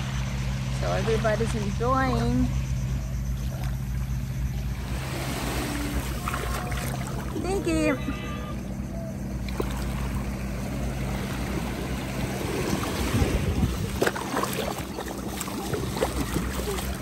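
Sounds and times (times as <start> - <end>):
steady low hum: 0.0 - 17.0
sea water washing and splashing: 4.7 - 7.9, 9.4 - 17.0
feet running through water: 5.6 - 7.4, 12.1 - 17.0.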